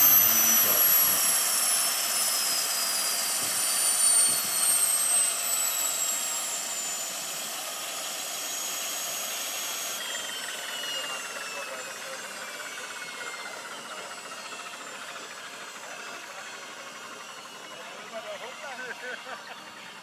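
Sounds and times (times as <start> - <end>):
gas turbine whine spooling down: 0.0 - 20.0.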